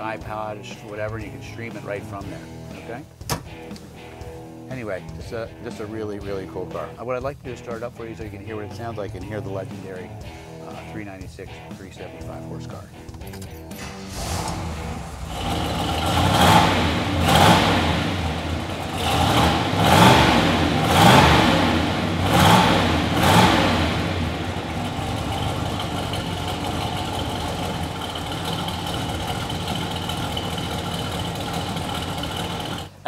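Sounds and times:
car engine revving and idling: 0:13.7 - 0:33.0.

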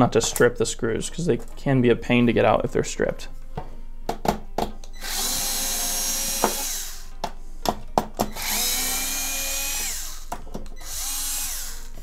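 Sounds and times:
electric screwdriver motor whine: 0:05.0 - 0:07.1, 0:08.3 - 0:12.0.

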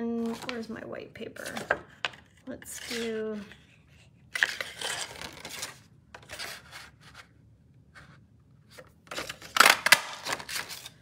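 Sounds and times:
cardstock rustling and scraping: 0:00.2 - 0:00.7, 0:01.4 - 0:07.3.

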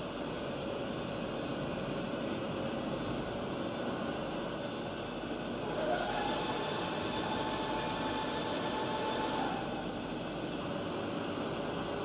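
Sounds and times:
machine hum and hiss: 0:00.0 - 0:12.0.

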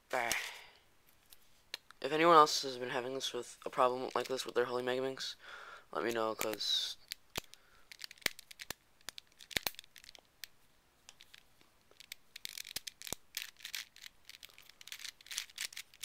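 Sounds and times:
plastic puzzle pieces clicking: 0:06.3 - 0:16.0.

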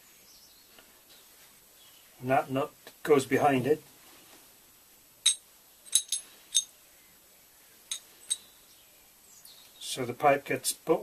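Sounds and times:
metallic clinks of pipe fitting: 0:05.2 - 0:06.7, 0:07.9 - 0:08.4.

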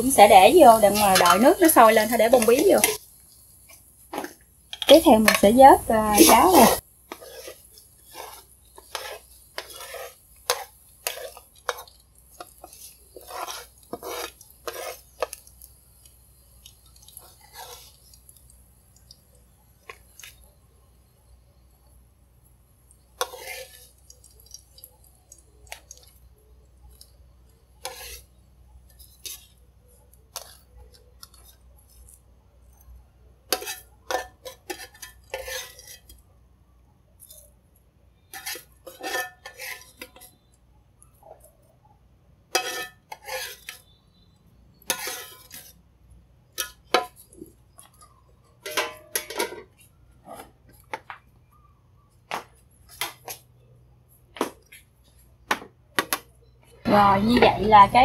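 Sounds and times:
spatula scraping a frying pan: 0:00.0 - 0:15.7, 0:16.8 - 0:18.5, 0:23.1 - 0:24.5, 0:27.8 - 0:29.6, 0:33.5 - 0:36.2, 0:38.2 - 0:40.5, 0:42.5 - 0:45.8, 0:46.5 - 0:50.6
spatula clinking on a plate: 0:33.5 - 0:35.8, 0:38.4 - 0:40.3, 0:42.5 - 0:43.8, 0:47.9 - 0:49.7.

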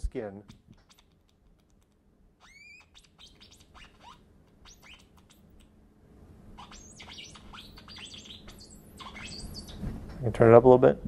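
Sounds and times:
chirping electronic tones: 0:06.6 - 0:09.8.

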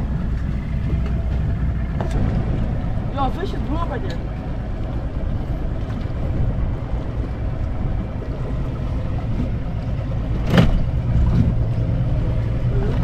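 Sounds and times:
outboard motor idling: 0:00.0 - 0:13.0.

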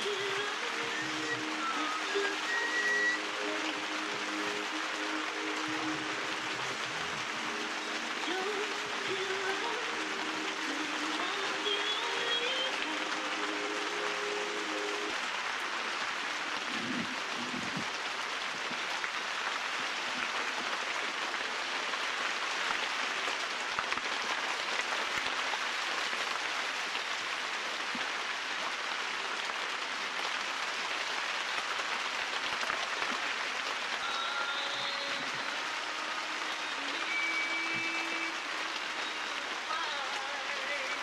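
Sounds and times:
steady background hiss: 0:00.0 - 0:18.8.

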